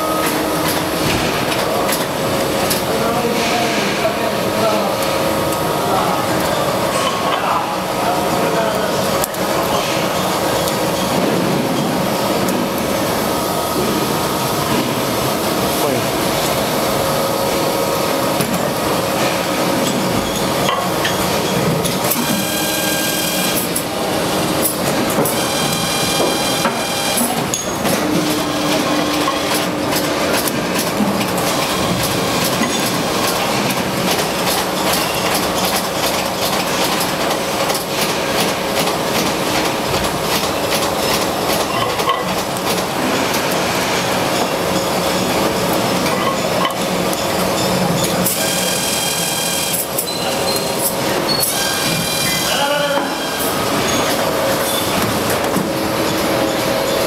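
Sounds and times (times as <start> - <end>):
machinery hum: 0.0 - 57.0
rapid machine clicking and clattering: 13.9 - 52.4.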